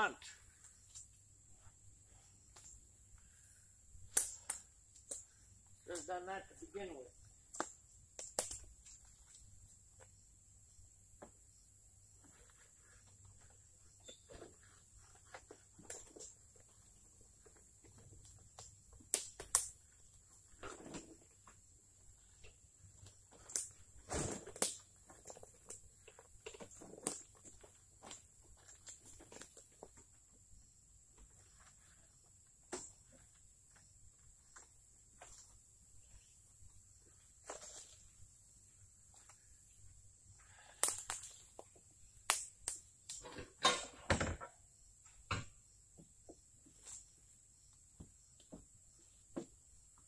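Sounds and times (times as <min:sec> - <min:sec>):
knocks and twig snaps: 0:04.0 - 0:06.1, 0:07.5 - 0:09.5, 0:18.2 - 0:20.1, 0:23.0 - 0:29.9, 0:40.5 - 0:43.3.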